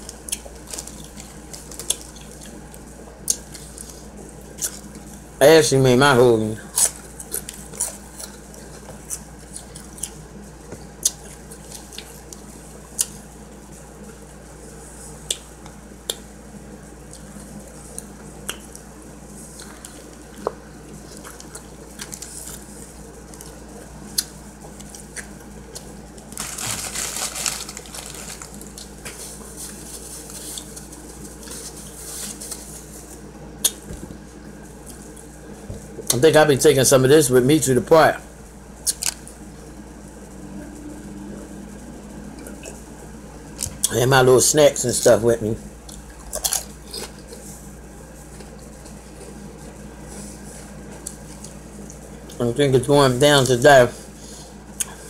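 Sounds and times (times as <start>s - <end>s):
crackly noise: 0.0s - 5.3s, 6.6s - 36.2s
steady low hum: 0.0s - 55.0s
person chewing with lip smacks: 11.0s - 12.4s, 23.4s - 25.9s.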